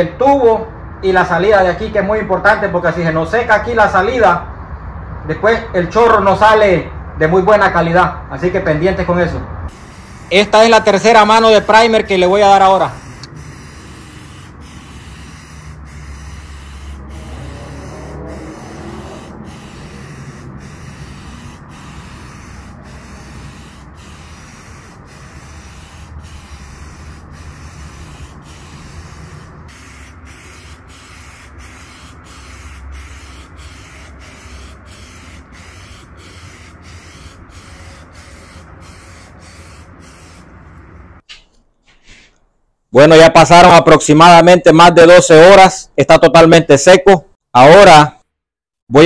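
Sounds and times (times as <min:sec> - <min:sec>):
aerosol spray can hissing: 0:09.7 - 0:40.6.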